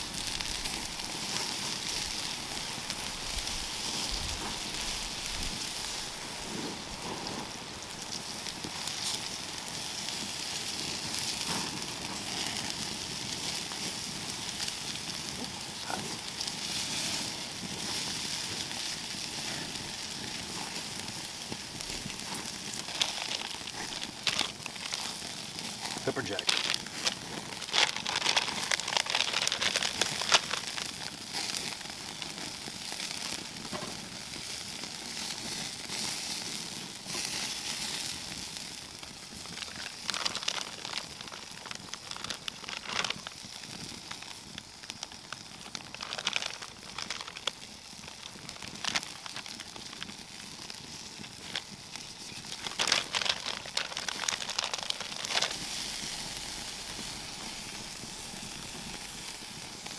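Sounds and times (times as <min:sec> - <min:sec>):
fire pops: 0:00.0 - 0:59.9
wood fire crackling: 0:00.0 - 0:59.9
crinkling and rustling: 0:15.3 - 0:32.5, 0:39.0 - 0:59.3.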